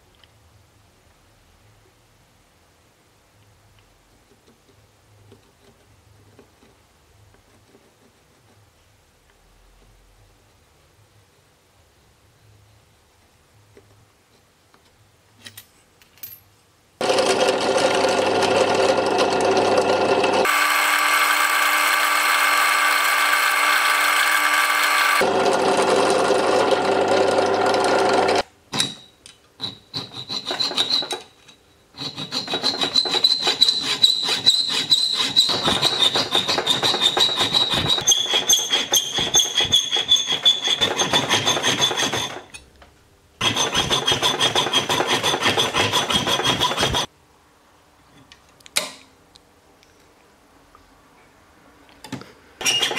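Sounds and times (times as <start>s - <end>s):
hand saw cutting metal coin: 20.3s - 25.3s, 29.6s - 31.4s, 32.0s - 42.6s, 43.4s - 47.1s, 52.6s - 52.9s.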